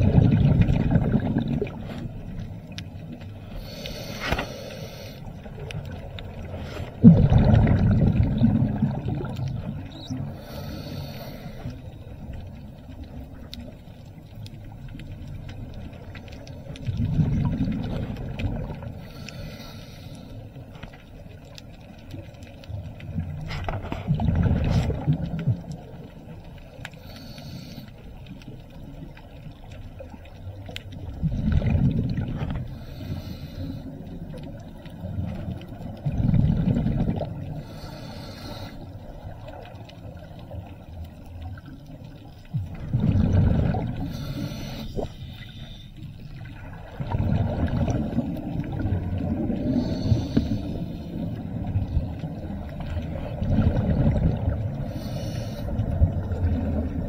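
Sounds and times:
bubbly rumble of exhaled air: 0.0s - 19.8s, 22.8s - 26.4s, 28.6s - 57.0s
regulator hiss on inhale: 3.4s - 5.4s, 10.2s - 12.2s, 19.0s - 20.6s, 26.9s - 28.4s, 32.7s - 34.1s, 37.5s - 39.1s, 44.0s - 46.2s, 49.6s - 51.4s, 54.8s - 56.0s.

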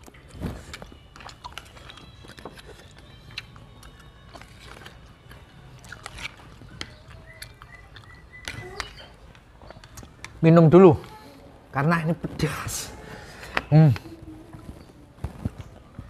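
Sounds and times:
chewing and mouth sounds: 0.0s - 10.4s.

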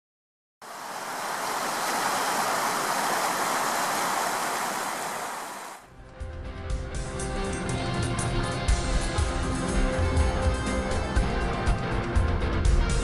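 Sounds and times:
stream rushing over stones: 0.6s - 5.8s.

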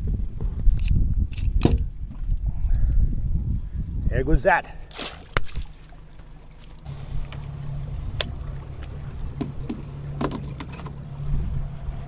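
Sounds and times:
electric trolling motor humming: 6.0s - 12.0s
clicks and knocks on boat: 7.3s - 11.1s.

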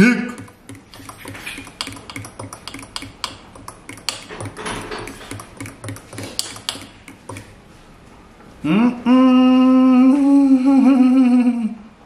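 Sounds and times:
spoon clinking against glass: 0.4s - 7.5s.

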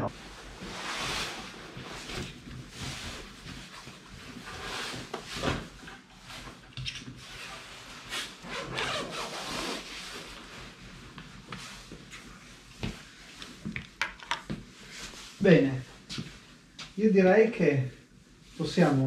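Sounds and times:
rustling and scraping: 0.1s - 15.4s.

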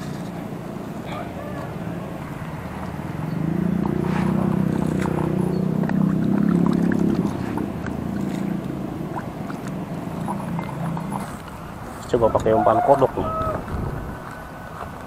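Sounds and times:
motor engine running: 0.0s - 12.6s.

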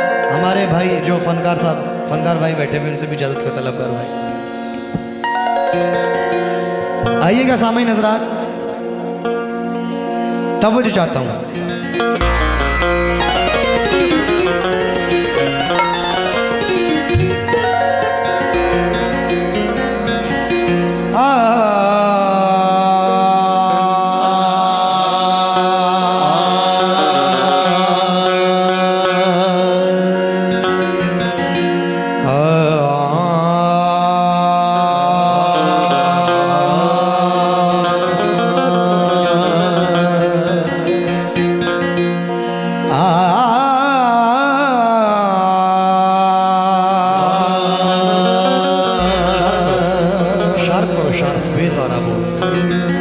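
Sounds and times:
harmonium drone: 3.2s - 33.7s, 46.0s - 53.0s
man singing a long note: 21.1s - 30.7s, 32.2s - 40.9s, 42.9s - 53.0s.

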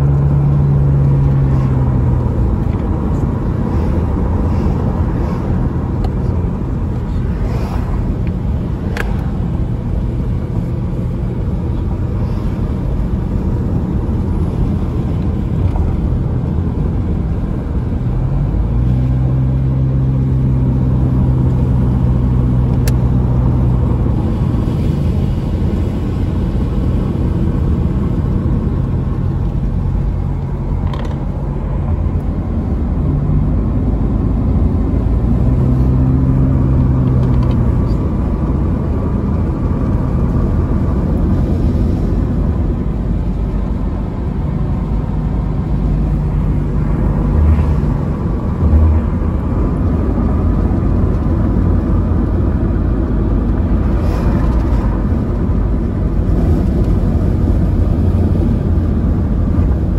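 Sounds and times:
low engine hum: 0.0s - 59.9s
tyre and road noise: 0.0s - 59.9s.

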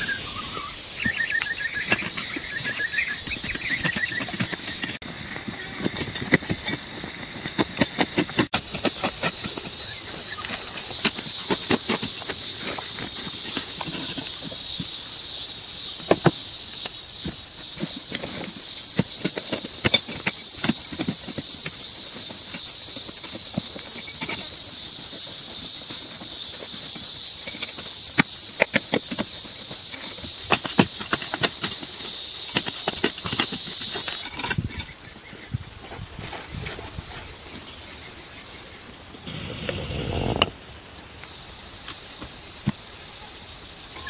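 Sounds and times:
scattered clicks and knocks: 1.8s - 9.8s, 16.0s - 35.0s
steady high hiss: 37.4s - 44.0s.

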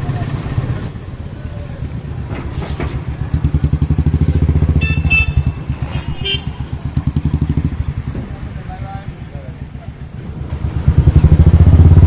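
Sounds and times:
motorcycle engine running: 3.1s - 8.2s, 10.4s - 12.0s.

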